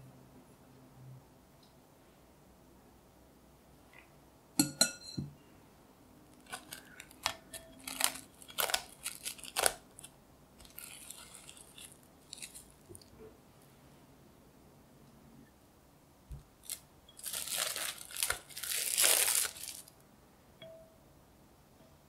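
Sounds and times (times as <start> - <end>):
cling film tearing and crinkling: 6.4 - 13.1, 16.6 - 20.0.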